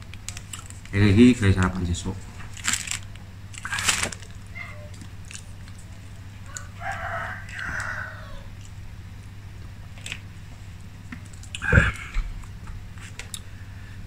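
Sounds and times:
steady low hum: 0.0s - 14.0s
plastic bottle crackling: 2.4s - 4.5s
rooster crowing: 6.4s - 8.6s.

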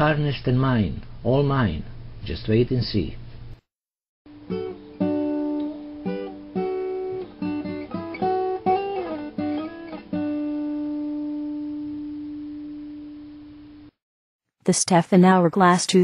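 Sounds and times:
plucked guitar notes: 4.3s - 12.9s.

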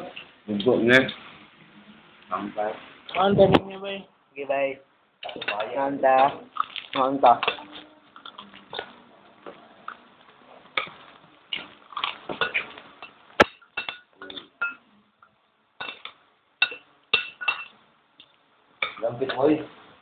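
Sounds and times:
utensil clinking on dinner plate: 15.8s - 17.7s.

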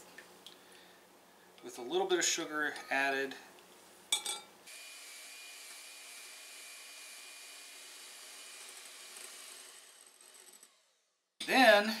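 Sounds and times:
electric hand mixer whirring: 4.7s - 10.8s.

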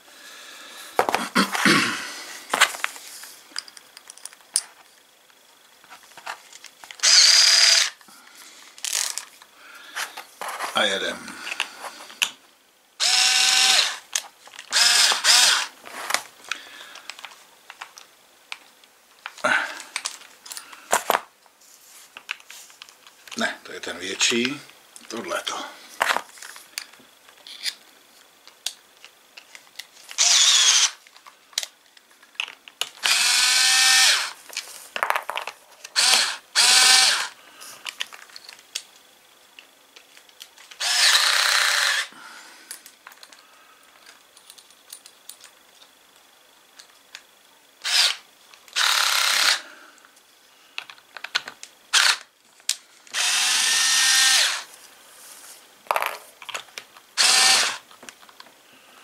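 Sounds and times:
cordless drill running in bursts: 7.0s - 8.0s, 13.0s - 14.1s, 14.7s - 15.8s, 30.2s - 31.0s, 33.0s - 34.4s, 36.0s - 37.4s, 40.8s - 42.1s, 47.8s - 49.7s, 51.9s - 52.2s, 53.1s - 54.7s, 57.2s - 57.8s.

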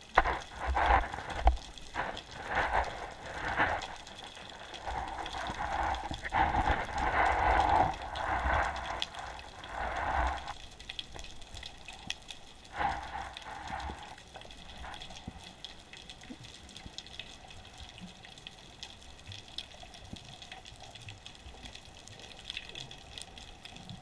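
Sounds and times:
muffled underwater swishing: 0.0s - 10.6s, 12.7s - 15.3s.

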